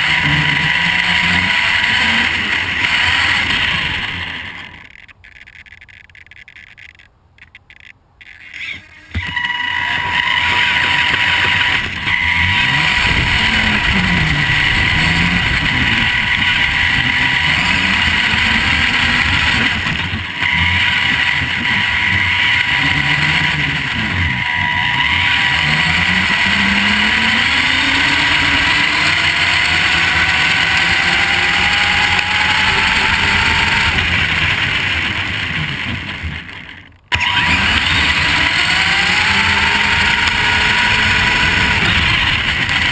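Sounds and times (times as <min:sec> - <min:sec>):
electric motor whining: 0:00.0 - 0:06.9, 0:08.2 - 0:42.9
tyres crunching on gravel: 0:09.2 - 0:32.1.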